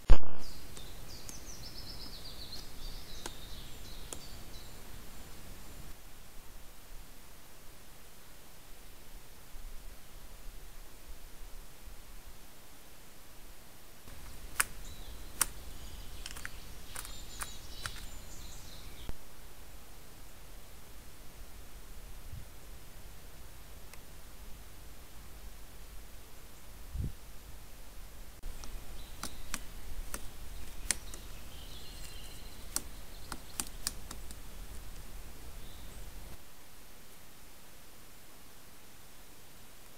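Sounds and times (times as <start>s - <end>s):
sharp clicks: 0.0s - 4.5s, 14.1s - 18.6s, 28.4s - 35.2s
low outdoor hiss: 0.0s - 39.9s
birds chirping and whistling: 0.4s - 5.4s, 14.2s - 19.1s, 28.7s - 34.3s, 35.5s - 36.4s
woodpecker pecking on tree trunk: 0.7s - 5.7s, 14.1s - 19.1s, 28.4s - 36.3s.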